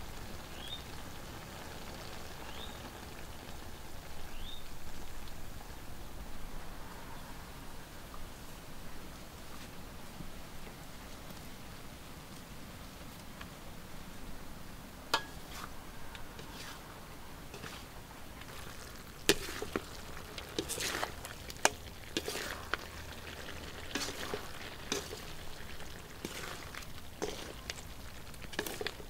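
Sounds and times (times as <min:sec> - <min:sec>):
meat sizzling in a wok: 0:00.0 - 0:05.5, 0:16.4 - 0:29.0
metal spatula scraping a wok: 0:15.2 - 0:15.8, 0:16.4 - 0:16.9, 0:17.5 - 0:18.7, 0:19.3 - 0:21.3, 0:22.1 - 0:22.8, 0:23.9 - 0:25.4, 0:26.2 - 0:27.8, 0:28.5 - 0:29.0.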